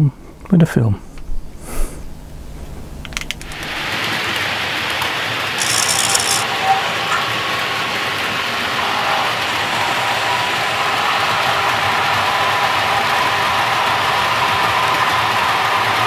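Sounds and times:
model locomotive whirring: 0:03.2 - 0:16.0.

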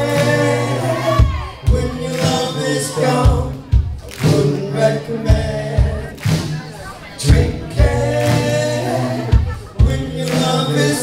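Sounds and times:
live band playing: 0:00.0 - 0:11.0
voices singing together: 0:00.0 - 0:11.0.

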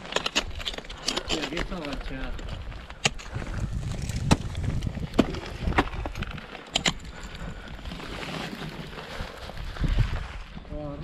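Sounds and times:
ice axe striking ice: 0:04.1 - 0:07.0.

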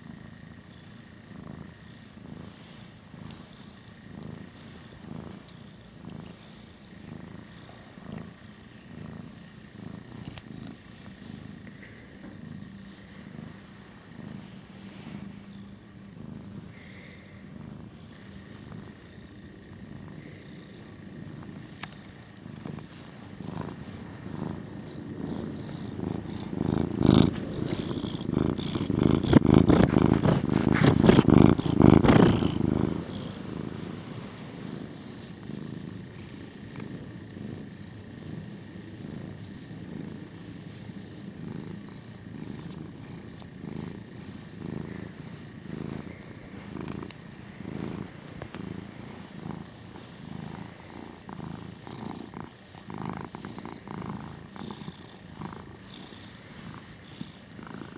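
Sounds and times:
cat purring: 0:00.0 - 0:57.9.

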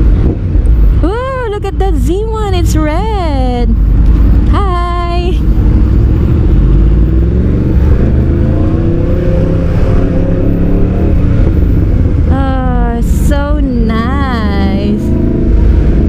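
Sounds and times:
motorcycle engine accelerating: 0:05.4 - 0:16.0.

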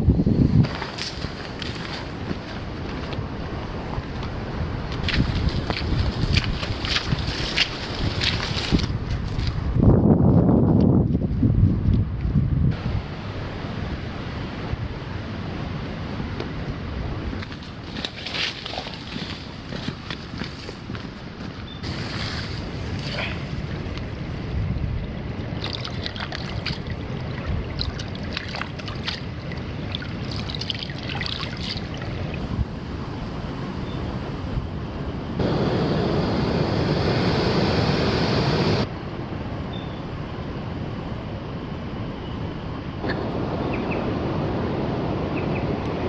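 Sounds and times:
wind noise on microphone: 0:00.0 - 0:46.0
stream trickling: 0:05.0 - 0:08.9, 0:24.9 - 0:32.6
hands splashing in water: 0:25.6 - 0:32.1.

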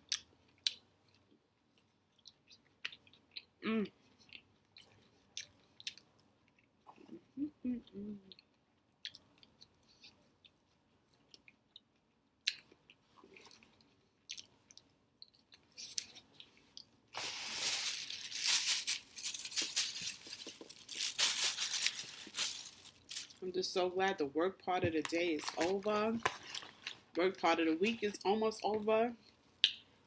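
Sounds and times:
chewing french fry: 0:00.0 - 0:07.2
food packaging crinkling: 0:17.2 - 0:23.4, 0:25.0 - 0:27.1.

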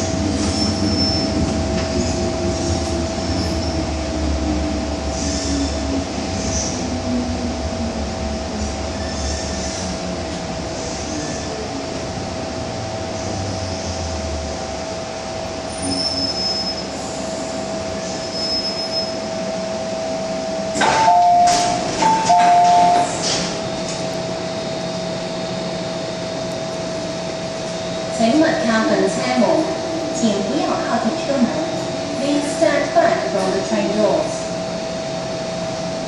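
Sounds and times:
train running rumble: 0:00.0 - 0:36.0
train doors clunking open: 0:20.7 - 0:24.2.

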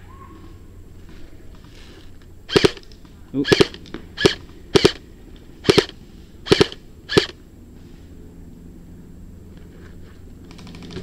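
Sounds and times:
airsoft rifle shots: 0:02.5 - 0:05.0, 0:05.6 - 0:07.4.

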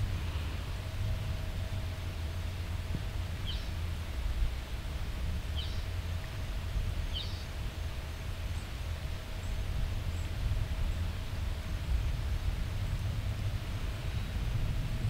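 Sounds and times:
constant low rumble: 0:00.0 - 0:15.0
rain falling on leafy trees: 0:00.0 - 0:15.0
bird chirping: 0:03.4 - 0:03.7, 0:05.6 - 0:05.8, 0:07.1 - 0:07.4.

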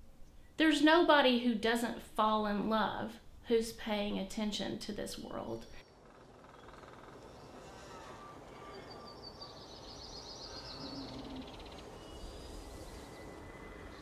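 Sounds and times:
birds chirping and trilling: 0:05.2 - 0:14.0
steady background noise: 0:05.3 - 0:14.0.

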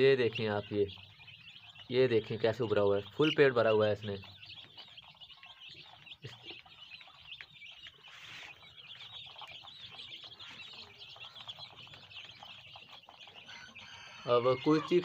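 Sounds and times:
chicks peeping: 0:00.0 - 0:15.0.

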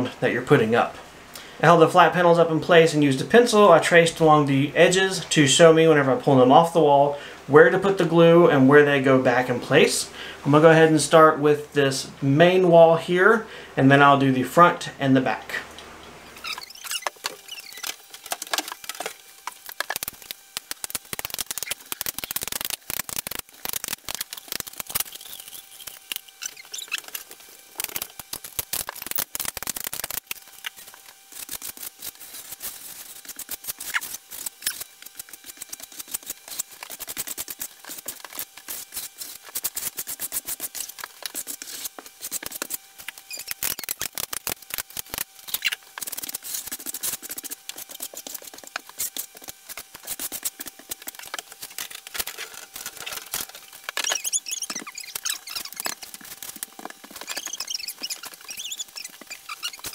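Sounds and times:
caulk gun clicking and squeaking: 0:16.4 - 0:19.0, 0:20.8 - 0:31.8, 0:33.3 - 0:46.4, 0:47.0 - 0:59.9.

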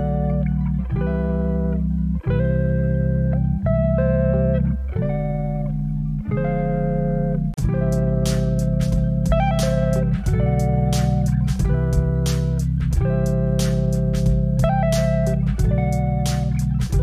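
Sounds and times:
instrumental background music: 0:00.0 - 0:17.0.

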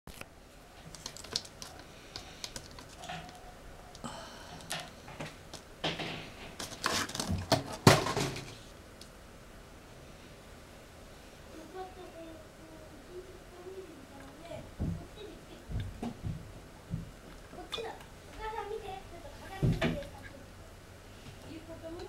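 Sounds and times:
rustling: 0:00.1 - 0:08.7.

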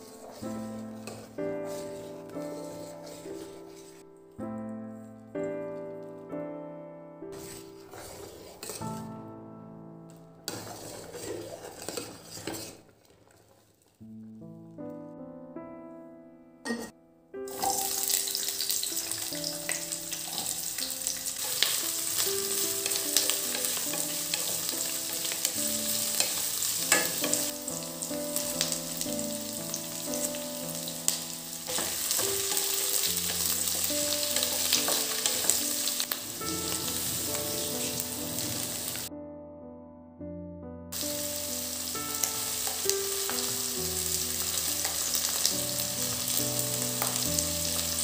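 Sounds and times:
vegetables sizzling in hot oil: 0:00.0 - 0:02.0, 0:17.5 - 0:39.1, 0:41.0 - 0:48.0
soft piano music: 0:00.0 - 0:11.9, 0:14.0 - 0:48.0.

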